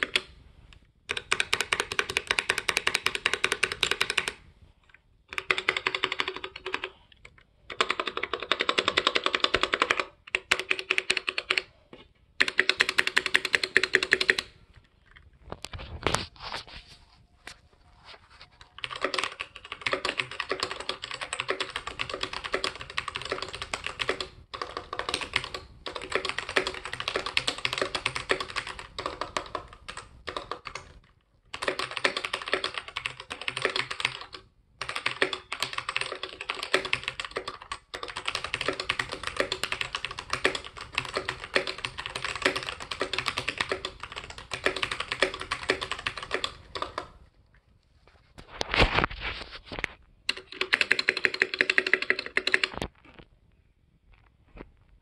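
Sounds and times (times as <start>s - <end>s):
mechanical keyboard typing: 0.0s - 0.3s, 1.1s - 4.4s, 5.3s - 11.7s, 12.4s - 14.6s, 18.7s - 47.2s, 50.3s - 52.9s.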